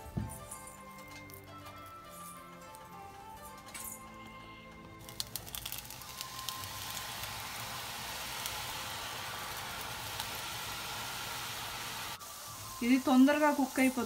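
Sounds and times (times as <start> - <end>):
sharp crackles of frying: 0.0 - 14.0
hot oil sizzling: 5.0 - 14.0.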